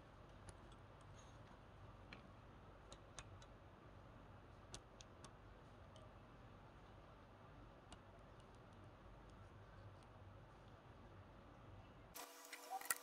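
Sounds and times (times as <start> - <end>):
faint clicks of tweezers: 2.9 - 3.6.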